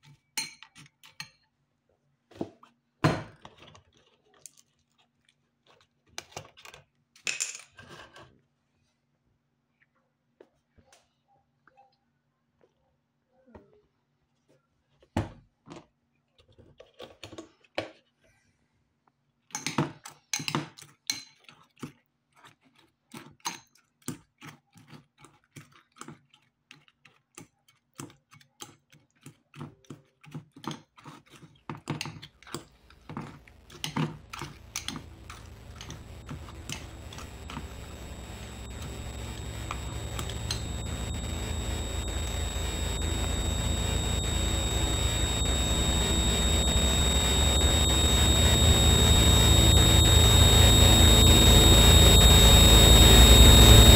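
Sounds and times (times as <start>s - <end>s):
hiss with high whine: 32.9s - 53.9s.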